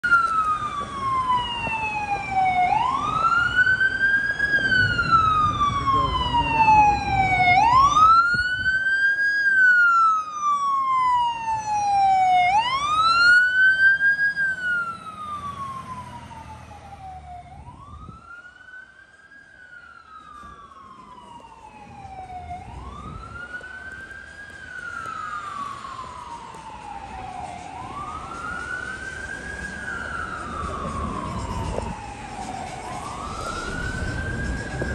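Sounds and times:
fire engine siren wailing: 0:00.0 - 0:34.9.

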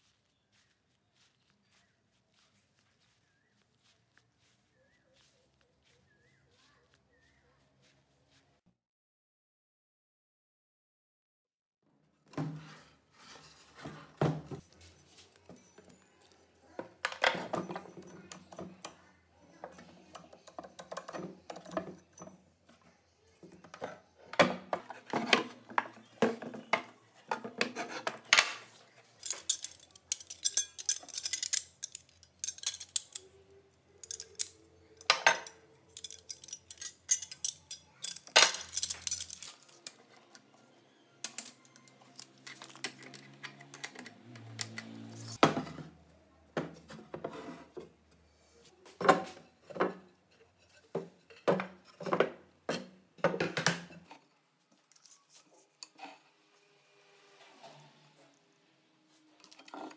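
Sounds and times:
metal parts clattering in drawer: 0:27.4 - 0:33.3, 0:34.0 - 0:40.0, 0:41.2 - 0:44.0.

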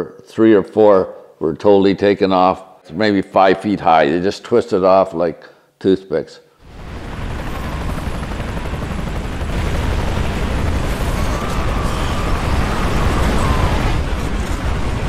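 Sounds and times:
tornado wind rumble: 0:06.7 - 0:15.0.

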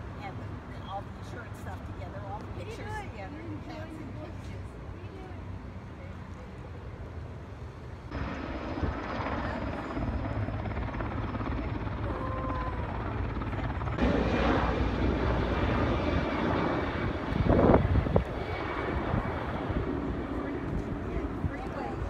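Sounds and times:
helicopter flying overhead: 0:00.0 - 0:22.0.

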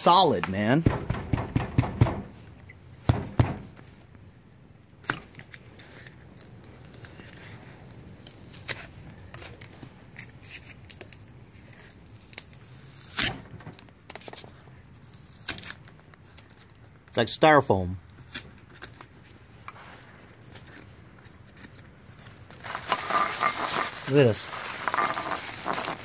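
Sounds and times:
loud knocks: 0:00.8 - 0:02.3, 0:03.1 - 0:03.7
foam crackling and tapping: 0:22.1 - 0:26.0.

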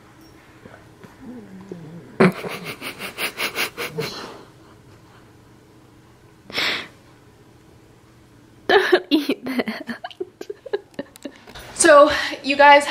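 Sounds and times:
dog sniffing rapidly: 0:02.5 - 0:04.4.

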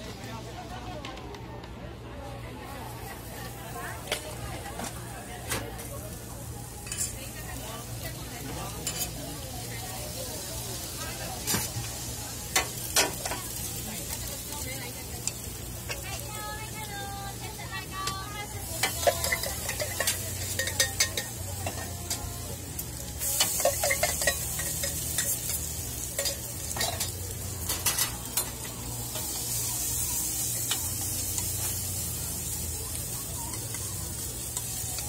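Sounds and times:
potato frying in oil: 0:02.8 - 0:35.0
metal utensils clinking: 0:06.8 - 0:07.2, 0:18.0 - 0:22.3, 0:23.2 - 0:29.3.

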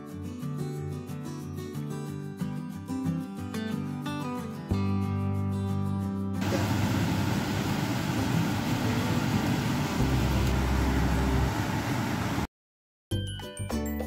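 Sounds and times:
steady rushing noise: 0:06.4 - 0:12.5.

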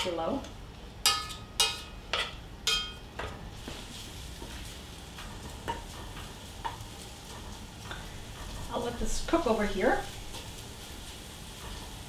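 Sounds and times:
bacon sizzling: 0:00.9 - 0:12.0
knife clinking against pot: 0:01.1 - 0:03.0.

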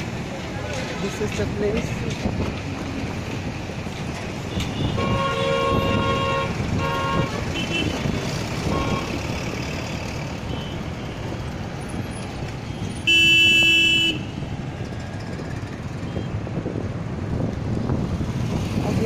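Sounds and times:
road and engine noise: 0:00.0 - 0:19.0
vehicle horn blast: 0:04.6 - 0:08.0, 0:08.6 - 0:09.1, 0:13.0 - 0:14.3.

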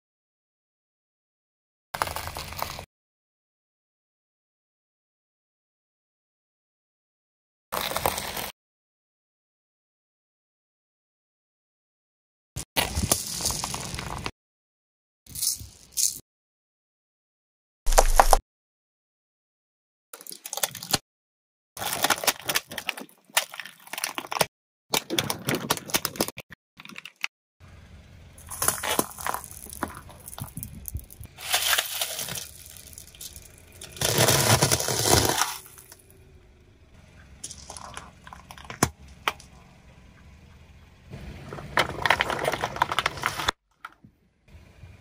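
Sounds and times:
tyre crushing brittle objects: 0:02.0 - 0:02.9, 0:07.8 - 0:08.5, 0:12.8 - 0:14.3, 0:17.9 - 0:18.4, 0:20.2 - 0:21.0, 0:21.8 - 0:27.2, 0:28.4 - 0:36.1, 0:41.5 - 0:43.9
car engine humming: 0:27.6 - 0:43.5, 0:44.1 - 0:45.0.

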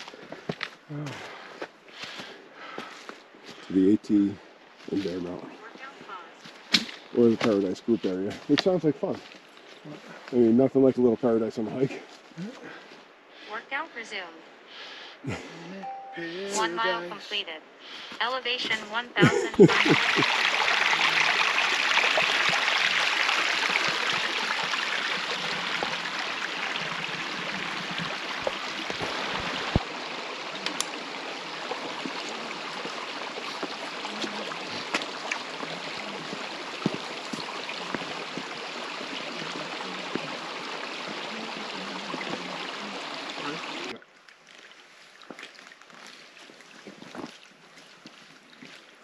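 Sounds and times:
stream water rushing: 0:19.6 - 0:49.0.

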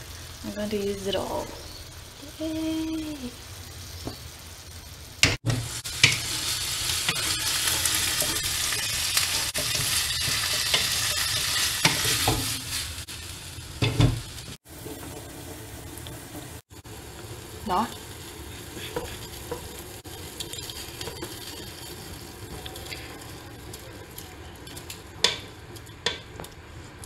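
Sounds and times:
food sizzling in a frying pan: 0:00.0 - 0:27.0
wooden spatula scraping a pan: 0:05.5 - 0:13.0, 0:18.2 - 0:23.4.

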